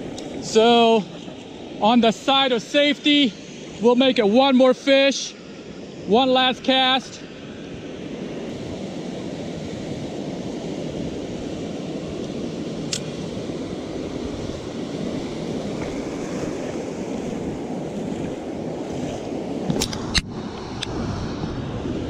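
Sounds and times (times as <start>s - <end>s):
ocean surf breaking: 0.0s - 22.0s
wind buffeting microphone: 8.2s - 22.0s
sharp click: 12.9s - 13.1s.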